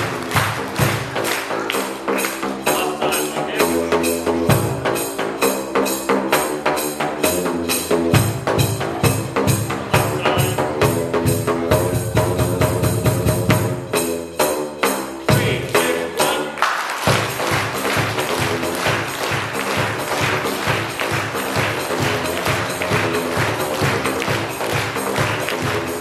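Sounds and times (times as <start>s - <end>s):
tambourine jingling: 13.4s - 26.0s.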